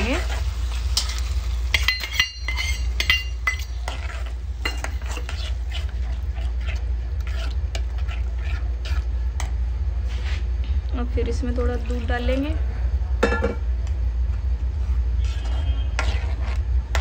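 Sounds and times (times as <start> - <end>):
metal spoon clinking on pot: 1.0 - 4.0
spoon scraping pot: 1.0 - 10.4, 14.8 - 17.0.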